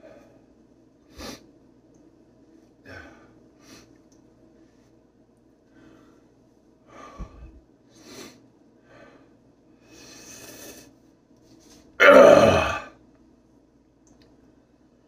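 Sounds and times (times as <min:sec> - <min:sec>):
man breathing hard: 0:02.8 - 0:04.0, 0:05.7 - 0:10.9.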